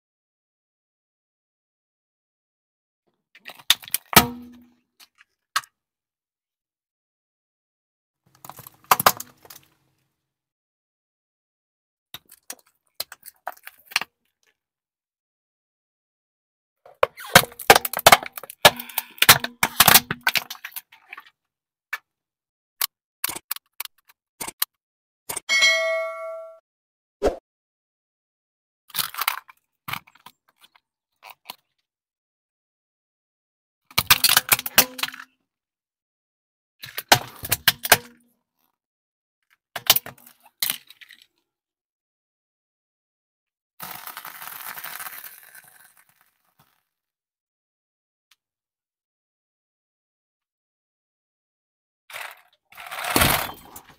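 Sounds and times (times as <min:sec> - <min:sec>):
plastic toy cracking under tyre: 0:08.4 - 0:09.6, 0:16.9 - 0:21.1, 0:34.0 - 0:35.2, 0:43.8 - 0:46.8
plastic toy cracking and snapping: 0:17.0 - 0:20.9, 0:28.9 - 0:30.1, 0:34.0 - 0:35.2.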